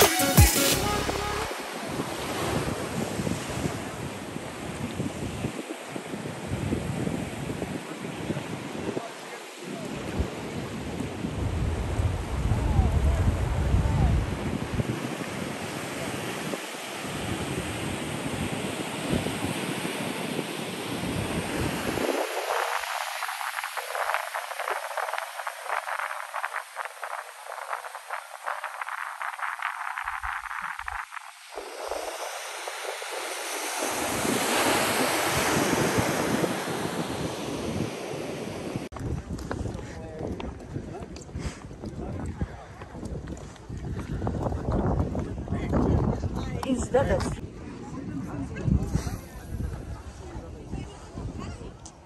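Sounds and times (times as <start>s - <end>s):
ocean surf: 0.0s - 38.9s
wind buffeting on microphone: 1.8s - 52.0s
crackling hiss: 22.0s - 33.8s.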